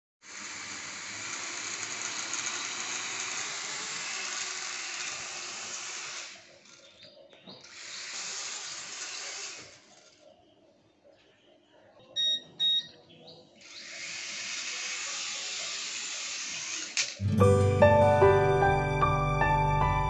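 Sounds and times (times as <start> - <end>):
toy drone propellers whirring: 0.2 - 7.0, 7.6 - 10.2, 13.6 - 17.2.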